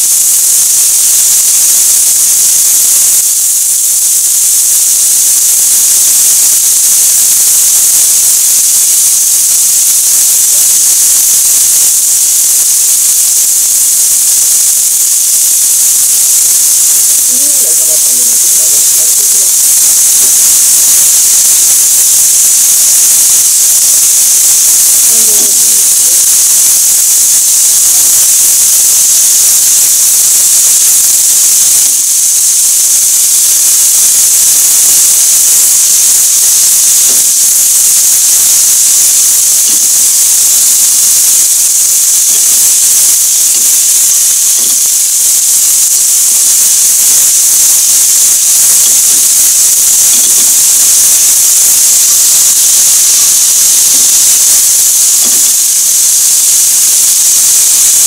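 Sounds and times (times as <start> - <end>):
chicken sizzling in a frying pan: 0.0 - 58.0.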